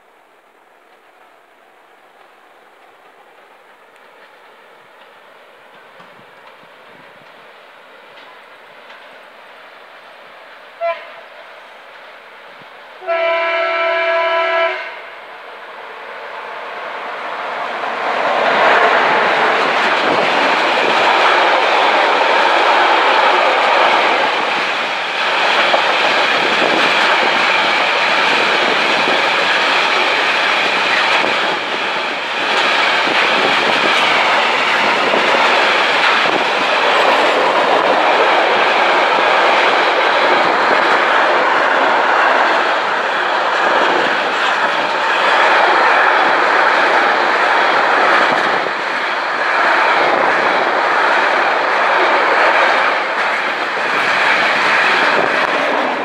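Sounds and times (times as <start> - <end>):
steel wheels running on rails: 0.9 - 10.8, 17.1 - 56.0.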